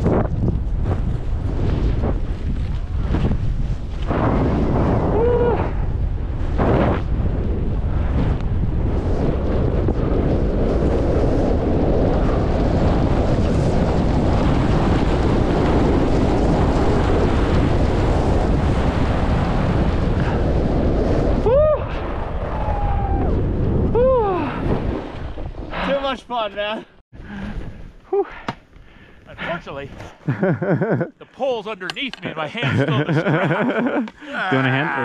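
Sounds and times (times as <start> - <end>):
wind rushing over microphone: 0.0 - 26.3.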